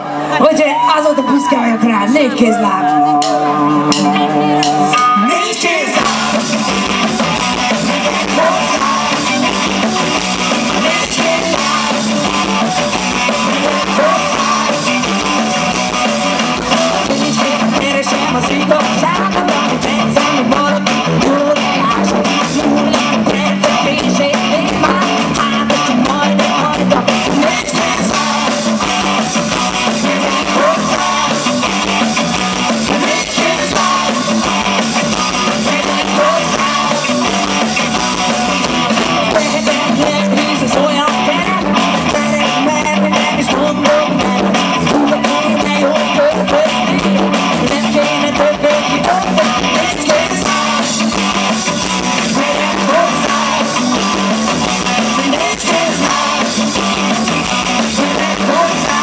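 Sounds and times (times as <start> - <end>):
electric guitar: 0.0 - 59.0
rock band playing live: 0.0 - 59.0
woman singing: 10.7 - 12.2, 16.6 - 28.6, 35.3 - 37.2, 39.3 - 51.0, 52.3 - 53.8, 55.0 - 56.6, 57.9 - 59.0.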